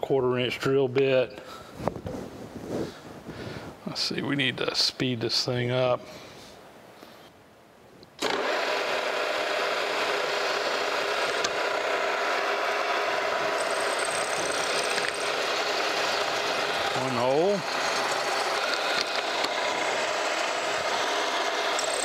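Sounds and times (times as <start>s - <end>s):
drill cutting into metal: 8.2s - 22.0s.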